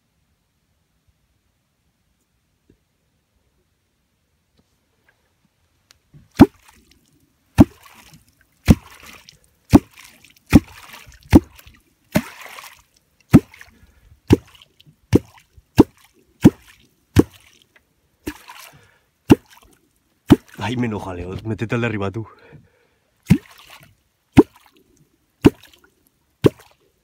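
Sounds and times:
hollow plop and splash in water: 6.3 - 20.7, 23.2 - 26.9.

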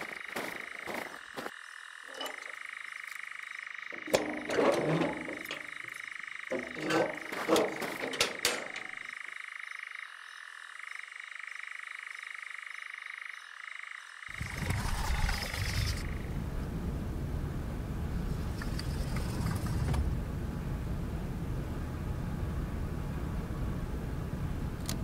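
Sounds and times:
frogs calling: 0.0 - 16.4.

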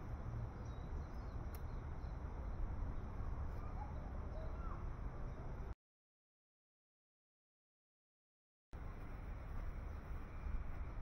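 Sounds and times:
faint bird chirps: 0.6 - 5.6.

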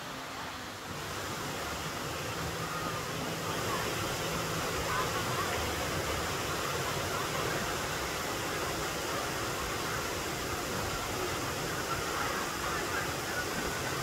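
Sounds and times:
faint voices: 0.0 - 14.0
waterfall rushing: 0.0 - 14.0.

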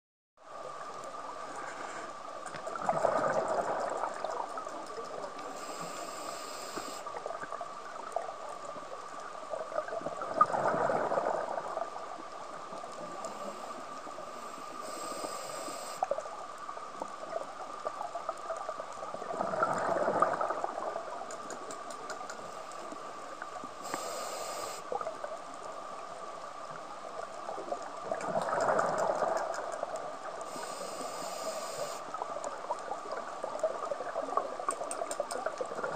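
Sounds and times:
faint hum: 0.4 - 35.9
exhaled bubbles rushing: 2.8 - 4.7, 28.0 - 29.6
regulator inhalation hiss: 5.5 - 7.1, 13.3 - 16.1, 23.8 - 24.9, 30.5 - 32.1.

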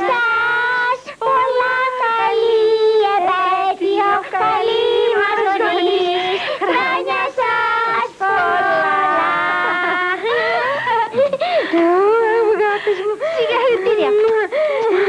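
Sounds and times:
child singing: 0.0 - 11.1.

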